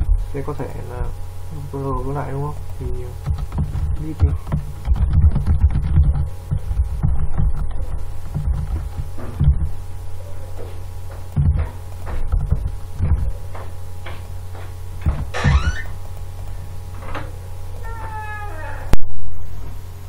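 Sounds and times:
low electrical hum: 0.0s - 20.0s
rising squeak: 15.3s - 16.0s.

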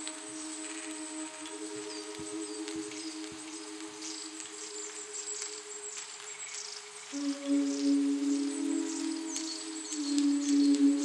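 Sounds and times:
insects chirping: 0.0s - 11.0s
singing bowls ringing: 7.1s - 11.0s.

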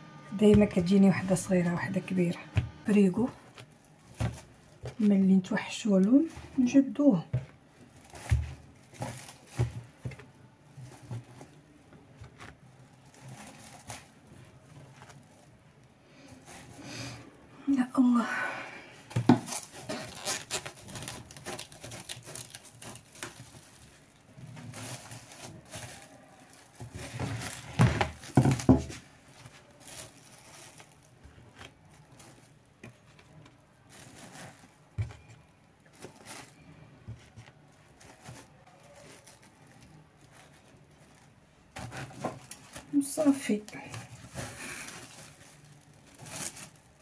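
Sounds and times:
cling film rustling and crinkling: 0.4s - 16.9s, 19.0s - 47.0s.

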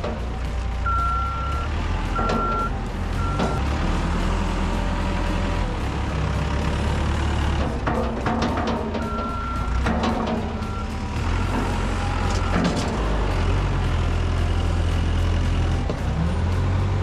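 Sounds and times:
diesel engine running: 0.0s - 17.0s
reversing alarm beeps: 0.8s - 3.6s, 9.1s - 9.7s, 10.6s - 12.7s.

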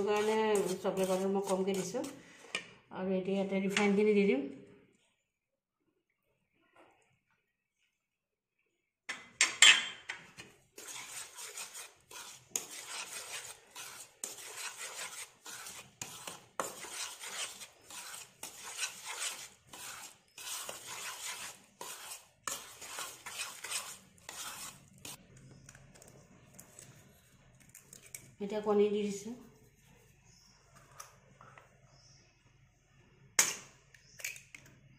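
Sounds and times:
spoon scraping batter in a bowl: 0.0s - 2.8s, 9.4s - 28.3s.

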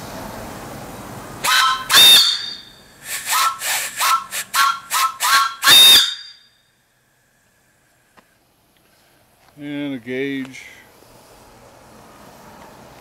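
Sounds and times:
steam whistle: 1.4s - 6.5s.

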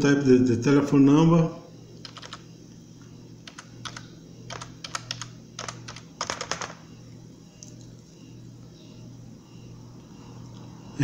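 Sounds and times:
low steady hum: 0.0s - 11.0s
typing on computer keyboard: 2.0s - 2.4s, 3.4s - 6.8s.

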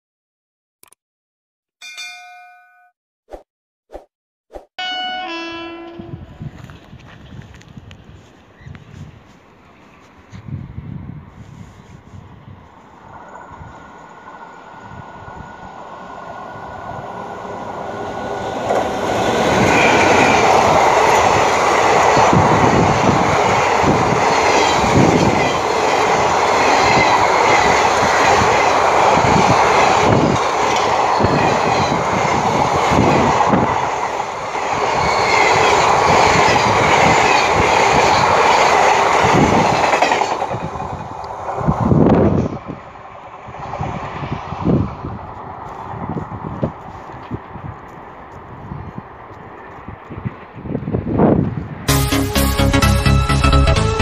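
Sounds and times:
train wheels rushing on rail: 6.2s - 51.9s
clickety-clack over rail joints: 18.6s - 34.2s, 35.2s - 42.8s, 44.8s - 51.6s.

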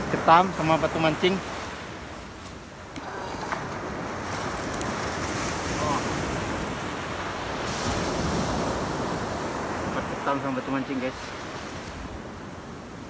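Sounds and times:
wind buffeting microphone: 0.0s - 10.3s
surf breaking on beach: 2.8s - 12.4s.

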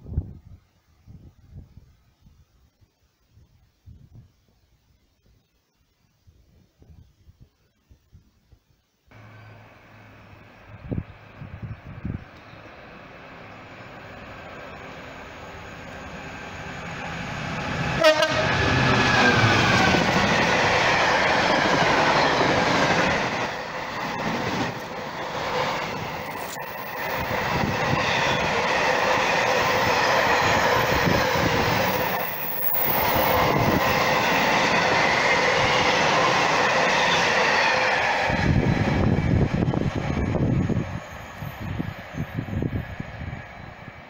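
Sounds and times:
diesel locomotive engine: 9.1s - 44.0s
train horn blast: 17.9s - 19.4s.

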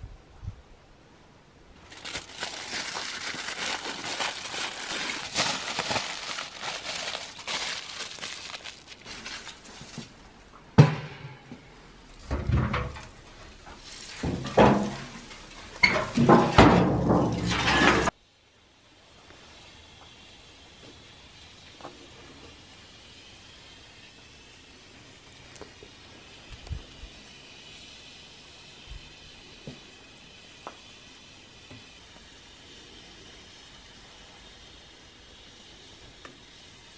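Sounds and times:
dry branches rustling: 1.8s - 10.5s, 12.1s - 18.1s.

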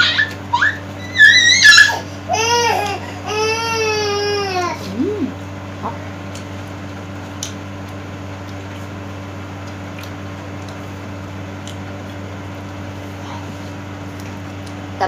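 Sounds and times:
steady low hum: 0.0s - 15.0s
chewing: 6.2s - 9.0s, 9.6s - 14.8s.

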